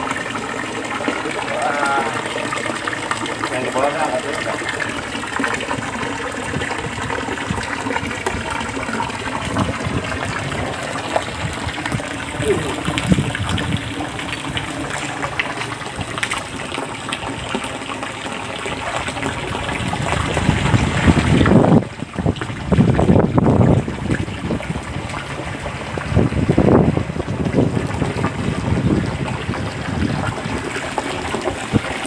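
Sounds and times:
water rushing in a channel: 0.0s - 32.0s
gusty rumbling noise: 5.7s - 15.0s, 19.2s - 32.0s.

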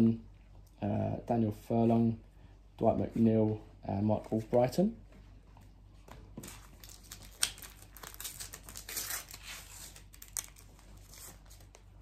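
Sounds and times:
card pack wrapper crinkling and tearing: 6.4s - 11.9s
wrapper crackles and snaps: 6.4s - 11.9s.

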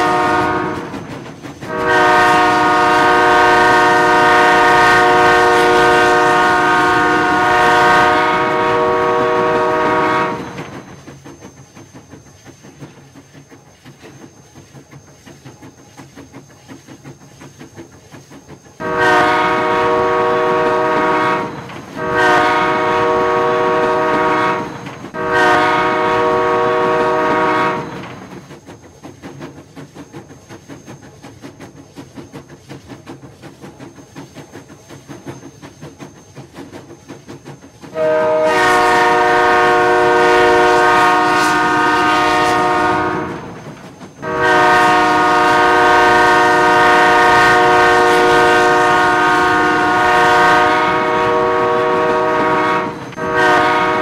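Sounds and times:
train horn blasts: 0.0s - 1.0s, 1.6s - 10.7s, 18.8s - 28.2s, 37.9s - 43.6s, 44.2s - 54.0s.

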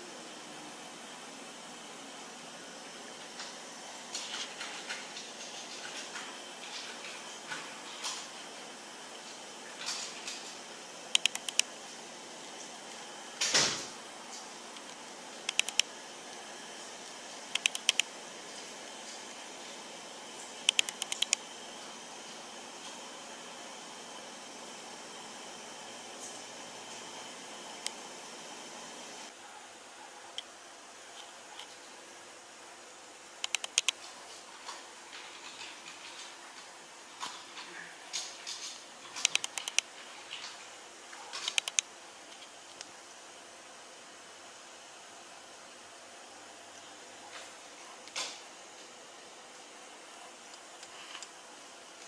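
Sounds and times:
faint room hiss: 0.0s - 52.0s
sharp clicks: 11.1s - 11.7s, 14.8s - 15.9s, 17.5s - 18.1s, 20.6s - 21.4s, 33.4s - 34.0s, 39.2s - 39.9s, 41.4s - 41.9s.

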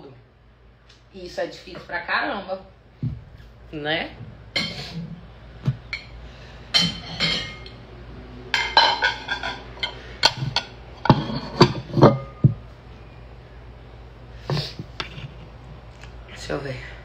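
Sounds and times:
dishes and glassware clinking: 4.6s - 5.0s, 6.7s - 7.8s, 8.6s - 12.6s.

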